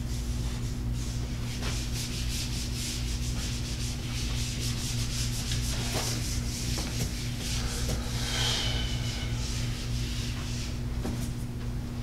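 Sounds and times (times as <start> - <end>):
low electrical hum: 0.0 - 12.0.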